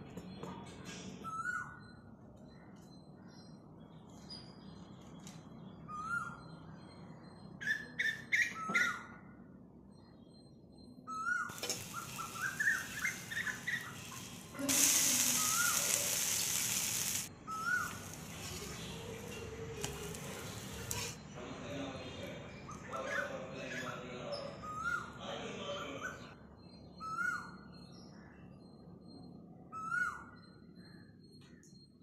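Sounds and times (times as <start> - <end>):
birds chirping: 9.9 - 29.2
oil sizzling on a hot griddle: 11.5 - 21.2.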